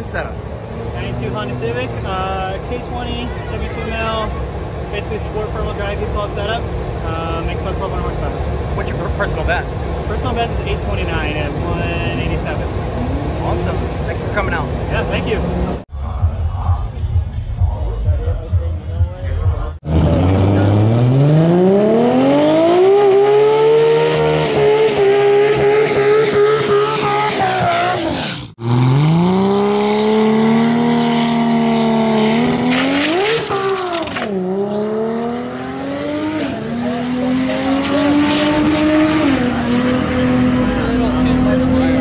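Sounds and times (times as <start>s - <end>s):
car engine revving: 4.3s - 15.9s, 19.2s - 42.0s
tire squeal: 25.9s - 28.5s, 29.9s - 37.1s.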